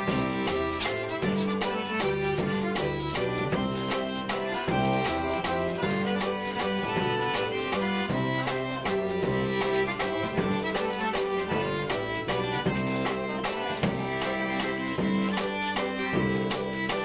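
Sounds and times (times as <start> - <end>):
accordion: 0.0 - 17.0
dance band playing: 0.0 - 17.0
drum kit: 0.0 - 17.0
upright bass: 0.0 - 17.0
upright piano: 0.0 - 17.0.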